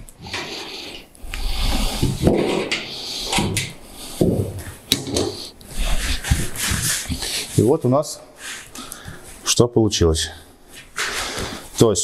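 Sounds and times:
sheet metal flexing and rubbing: 0:00.0 - 0:07.8.

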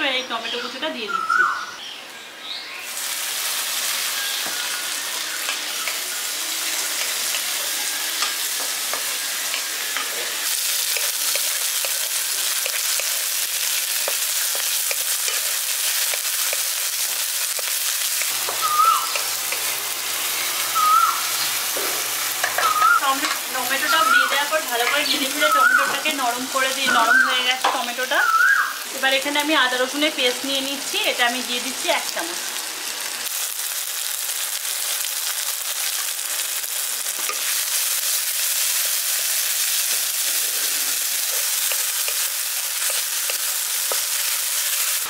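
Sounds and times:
onion and tomato sizzling in oil: 0:02.8 - 0:45.0
high chirps: 0:18.4 - 0:19.7, 0:20.4 - 0:21.6, 0:22.4 - 0:26.0.

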